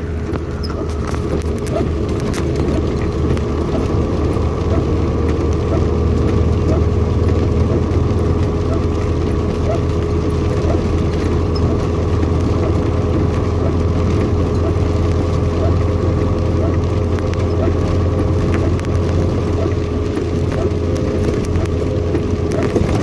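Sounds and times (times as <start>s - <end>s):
engine drone: 0.0s - 23.0s.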